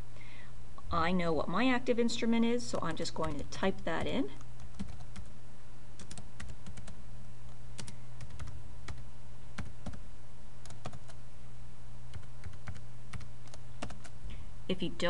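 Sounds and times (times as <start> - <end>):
steady low hum: 0.0 - 15.0
computer keyboard typing: 3.2 - 5.3, 6.0 - 7.0, 7.8 - 9.0, 10.6 - 11.2, 12.1 - 14.2.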